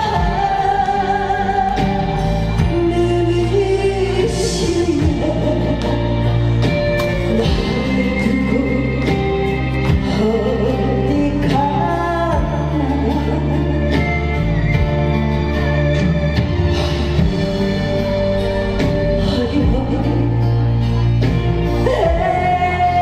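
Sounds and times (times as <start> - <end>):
woman singing into microphone: 0.0 - 14.7, 19.0 - 23.0
backing track music: 0.0 - 23.0.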